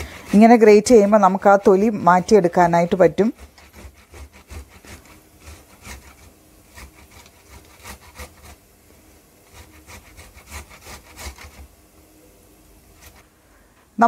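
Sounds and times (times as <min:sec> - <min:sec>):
tomato scraping on metal grater: 0:00.0 - 0:08.7, 0:09.4 - 0:11.7, 0:12.9 - 0:13.2.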